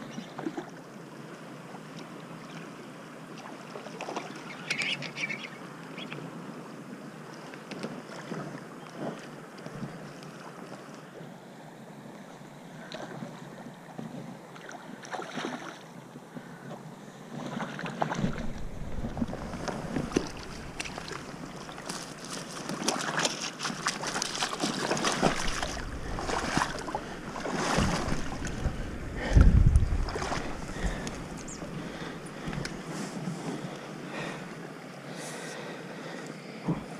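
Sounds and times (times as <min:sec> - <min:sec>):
water splashing around fish: 0:14.6 - 0:15.8, 0:17.5 - 0:33.6
heavy low bump: 0:18.2 - 0:21.3, 0:25.5 - 0:31.8
wind buffeting microphone: 0:18.2 - 0:21.9, 0:24.5 - 0:33.7.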